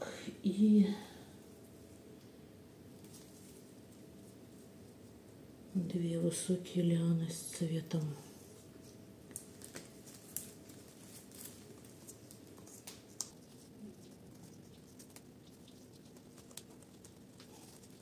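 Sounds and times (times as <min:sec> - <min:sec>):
leaves and stems rustling: 0:09.4 - 0:18.0.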